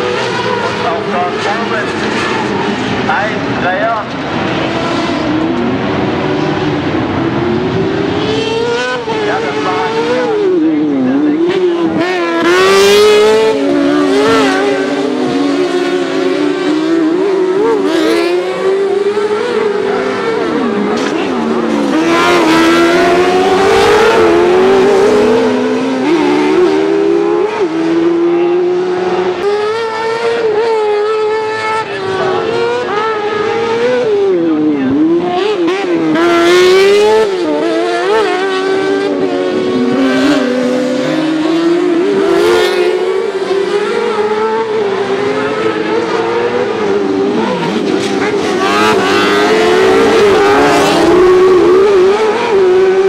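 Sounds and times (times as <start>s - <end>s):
racing engines revving: 0.0s - 53.0s.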